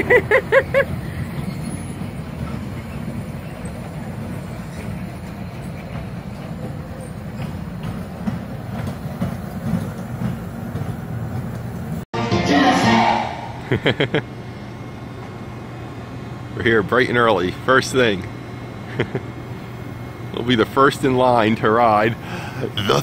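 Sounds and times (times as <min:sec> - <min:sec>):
miniature train rumbling: 0:00.0 - 0:12.0, 0:16.5 - 0:23.0
wheels ticking on rails: 0:00.0 - 0:12.0.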